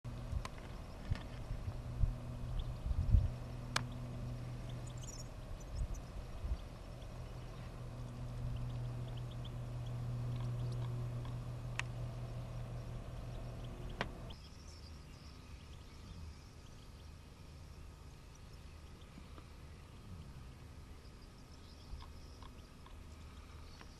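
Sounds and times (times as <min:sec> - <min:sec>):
steady low rumble: 0:00.0 - 0:23.9
finches twittering: 0:00.1 - 0:23.9
sharp clicks: 0:03.7 - 0:05.0, 0:08.0 - 0:14.4.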